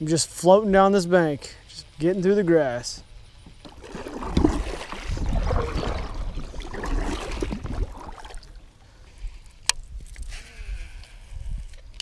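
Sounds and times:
paddle splashing through water: 3.6s - 8.7s.

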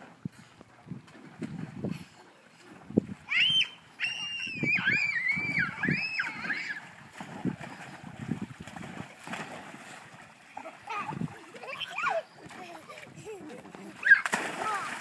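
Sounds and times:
water splashing in a pool: 0.0s - 15.0s
child squealing: 3.3s - 6.8s, 14.0s - 14.9s.

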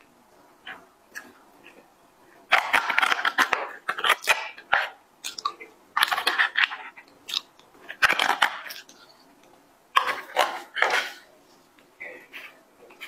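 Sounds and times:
wet smacking and chewing: 5.2s - 11.2s.

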